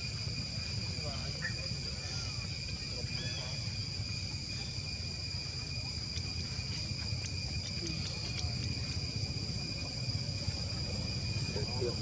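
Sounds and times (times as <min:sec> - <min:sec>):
insect chorus: 0:00.0 - 0:12.0
faint ticks: 0:06.0 - 0:09.1.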